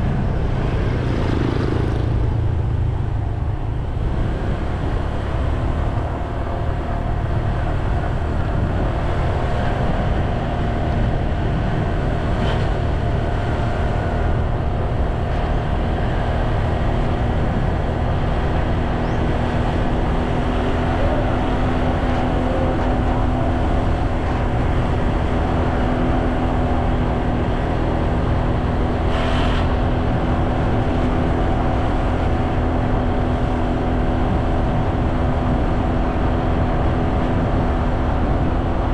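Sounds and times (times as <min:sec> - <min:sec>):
vehicle engine running: 0:00.0 - 0:38.9
wind rumble on microphone: 0:00.0 - 0:38.9.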